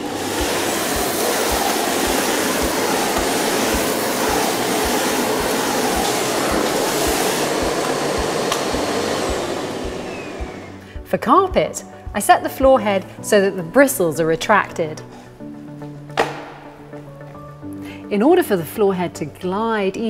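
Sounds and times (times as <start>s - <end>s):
vacuum cleaner suction on tile: 0.0s - 10.9s
background music beat: 0.1s - 13.3s, 15.0s - 18.0s.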